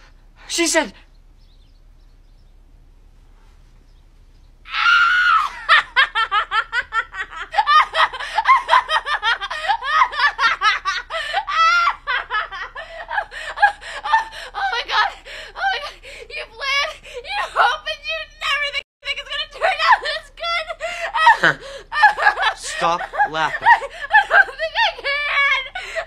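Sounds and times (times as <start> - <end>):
woman laughing loudly: 4.8 - 15.9, 19.6 - 26.0.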